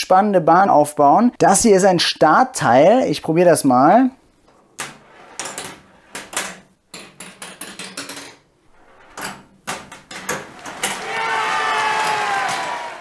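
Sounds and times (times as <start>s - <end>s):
marble rolling on rails: 4.5s - 12.8s
marble clacking through plastic track: 4.8s - 11.1s.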